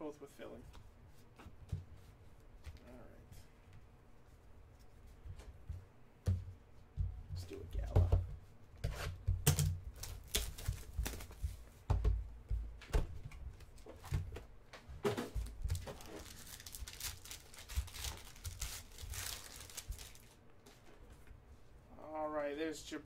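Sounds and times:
foil wrapper ripping and crinkling: 9.5 - 11.4, 15.6 - 20.4.

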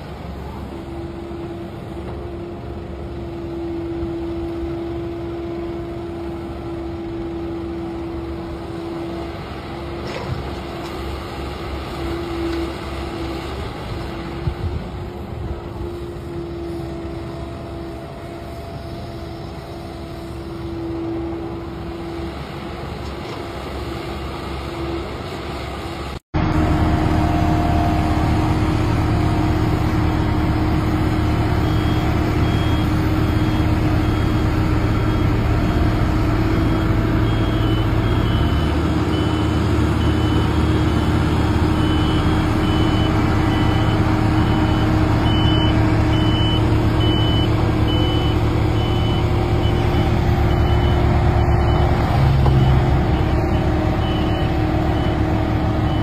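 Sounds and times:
diesel road rollers running: 0.0 - 56.0
reversing alarm beeping: 27.4 - 56.0.

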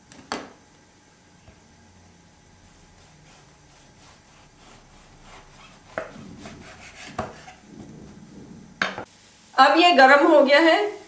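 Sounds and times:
knife sawing through bread: 2.9 - 7.6
knife knocking on wooden board: 5.9 - 8.2.

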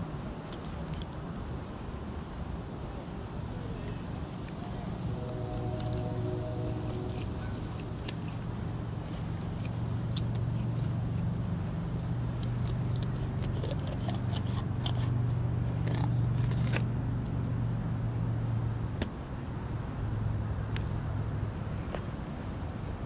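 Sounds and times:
low hum: 4.6 - 12.4
thin high whine: 4.8 - 9.6.

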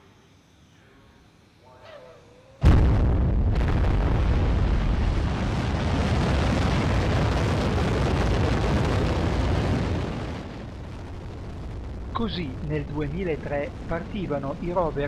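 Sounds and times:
rocket engine roaring: 2.6 - 15.0.

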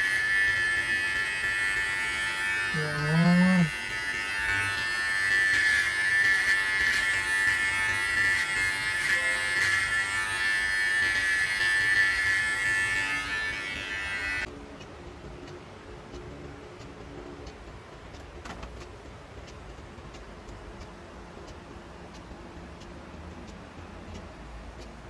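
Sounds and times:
electric hair clipper buzzing: 0.0 - 14.5.

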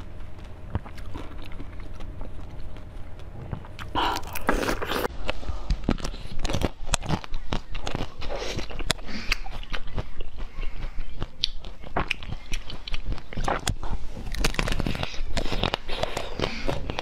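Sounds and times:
biting and chewing crunchy treats: 0.0 - 17.0
mouth noises: 0.0 - 17.0.

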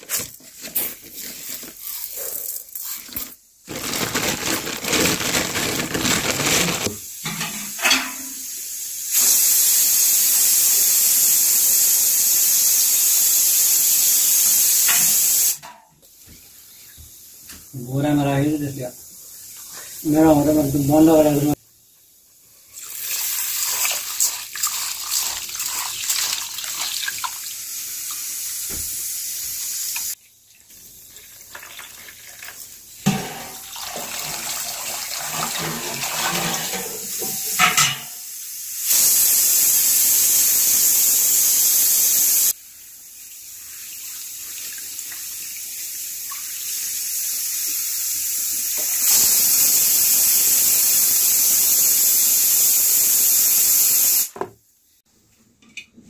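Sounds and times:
water pouring into plastic basin: 3.7 - 7.0, 22.7 - 27.5, 30.5 - 32.8, 33.6 - 36.4
water pouring onto rice: 22.7 - 27.5.

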